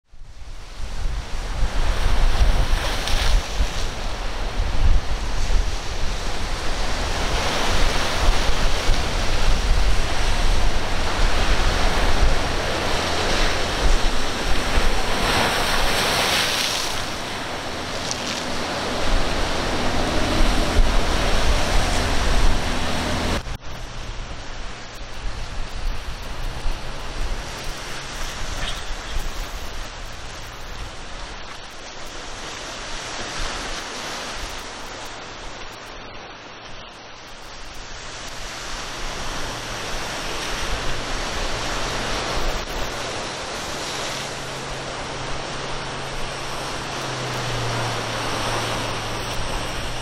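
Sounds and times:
wind buffeting microphone: 0:00.2 - 0:31.4
surf breaking and rushing: 0:00.2 - 0:50.0
boat engine hum: 0:03.4 - 0:32.9, 0:34.0 - 0:50.0.

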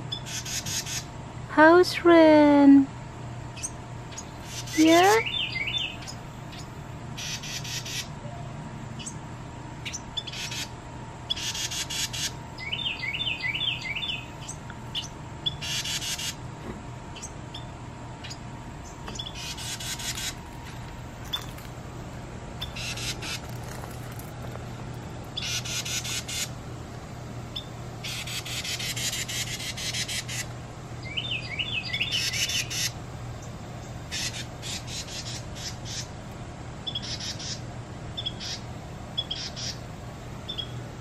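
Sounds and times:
wren chattering calls: 0:00.1 - 0:01.1, 0:03.6 - 0:08.2, 0:09.0 - 0:09.2, 0:09.8 - 0:16.4, 0:17.2 - 0:21.6, 0:22.6 - 0:24.3, 0:25.3 - 0:26.6, 0:27.5 - 0:36.2, 0:36.8 - 0:39.9, 0:40.5 - 0:40.8.

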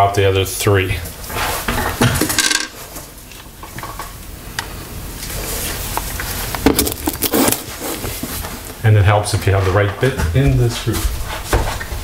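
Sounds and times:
tools set down on counter: 0:01.8 - 0:02.8
rustling and handling: 0:05.2 - 0:08.8.

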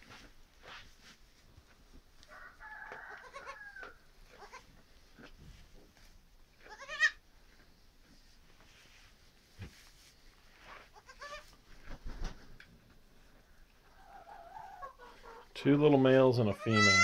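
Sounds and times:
goat kid bleating: 0:03.2 - 0:03.6, 0:04.3 - 0:04.8, 0:06.6 - 0:07.2, 0:10.9 - 0:11.5, 0:16.5 - 0:17.0.

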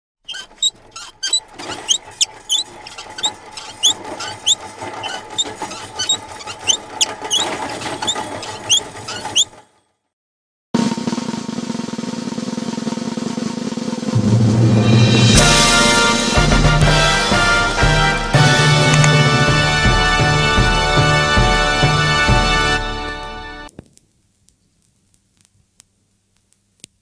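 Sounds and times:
high squeaky chirps: 0:00.2 - 0:09.6
snare drum roll: 0:10.8 - 0:22.8.

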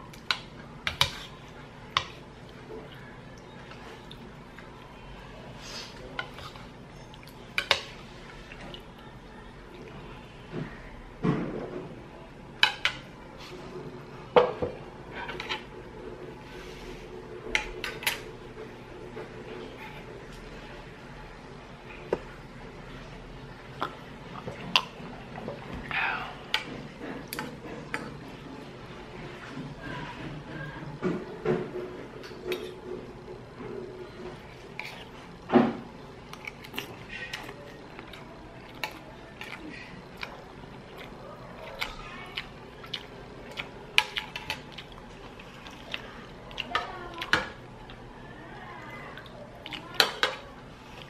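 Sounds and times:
cutlery scraping plate: 0:15.2 - 0:15.7.

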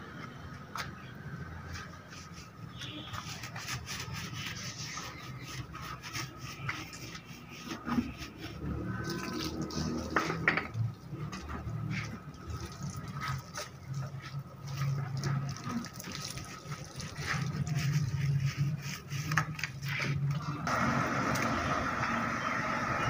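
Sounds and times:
wet scrubbing: 0:01.5 - 0:20.4
water dripping: 0:09.0 - 0:18.0.

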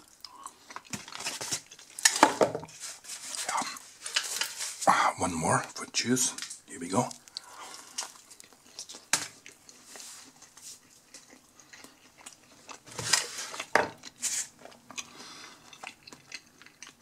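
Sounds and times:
person chewing pizza: 0:00.0 - 0:02.1, 0:06.4 - 0:17.0.

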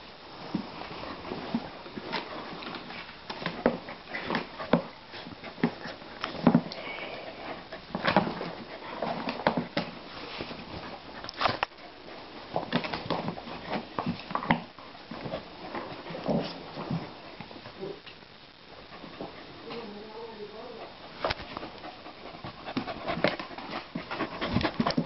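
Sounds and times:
rustling of dog fur: 0:00.4 - 0:17.8.

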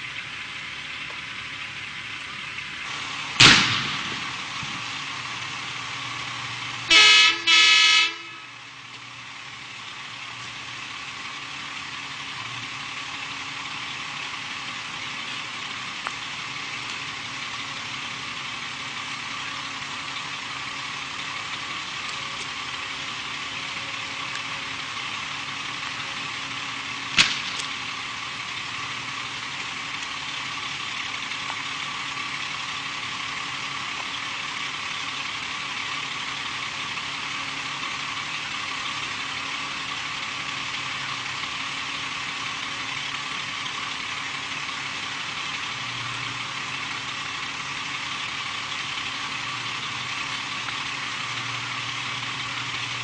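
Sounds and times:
sharp bang: 0:03.4 - 0:04.4, 0:27.2 - 0:27.6
vehicle horn blasts: 0:06.9 - 0:08.6.

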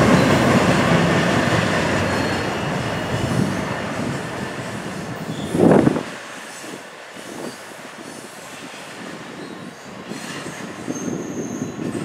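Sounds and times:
train wheels rumbling on rails: 0:00.0 - 0:12.0
high wheel squeal: 0:05.2 - 0:05.8, 0:06.5 - 0:12.0.

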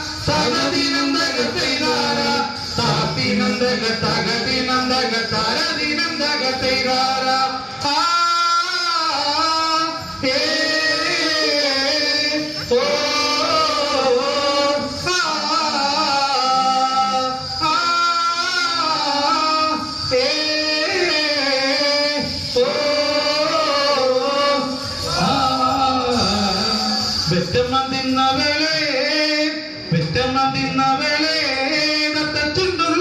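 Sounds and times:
men singing through pa system: 0:00.0 - 0:33.0.

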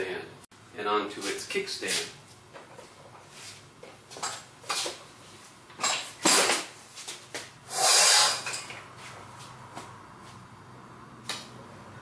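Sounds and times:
metal scraping: 0:07.7 - 0:08.7.

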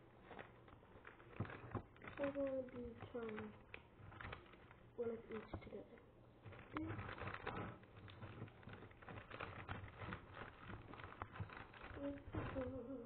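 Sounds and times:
person chewing sweets: 0:06.4 - 0:13.0.

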